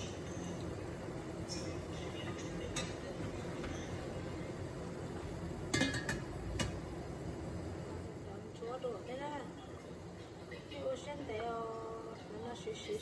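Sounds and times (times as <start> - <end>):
low background noise: 0.0 - 13.0
metal lid clinking on pot: 5.7 - 6.8.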